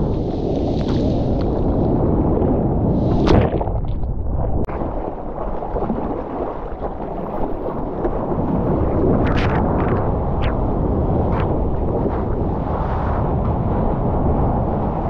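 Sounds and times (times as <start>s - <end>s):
wind buffeting microphone: 0.0s - 15.0s
water splashing around surfboard: 0.1s - 1.8s, 2.9s - 10.6s.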